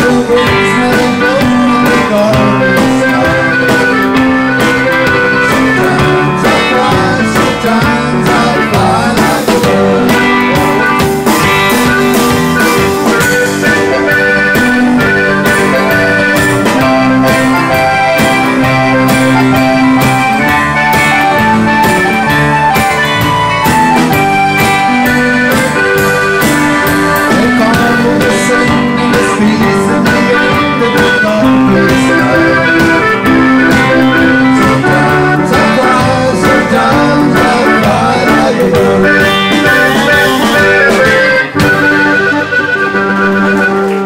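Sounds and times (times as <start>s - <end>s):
man singing: 0.0s - 11.2s, 13.5s - 19.8s, 27.1s - 41.6s
drum kit: 0.0s - 44.0s
electric bass: 0.0s - 44.0s
electric guitars: 0.0s - 44.0s.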